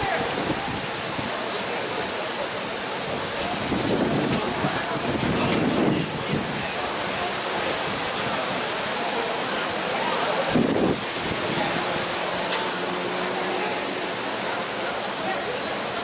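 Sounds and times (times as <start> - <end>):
wind buffeting microphone: 0.0 - 1.4, 3.0 - 8.6, 10.4 - 12.9
strong wind rushing: 3.1 - 7.0, 10.4 - 12.4.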